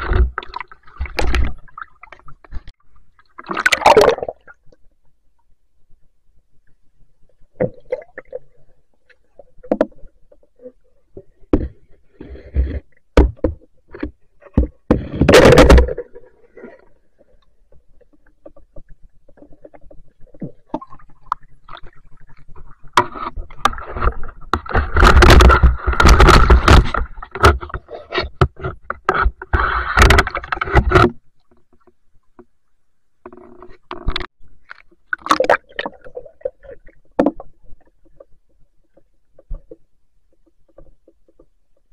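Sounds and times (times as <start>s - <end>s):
churning water: 0.0s - 4.5s
water sloshing and bubbling: 0.0s - 41.9s.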